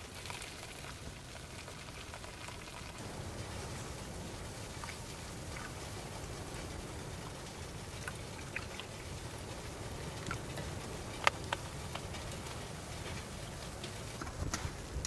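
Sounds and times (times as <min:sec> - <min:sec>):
fire crackling: 0:00.0 - 0:15.0
wood stove rumbling: 0:03.0 - 0:15.0.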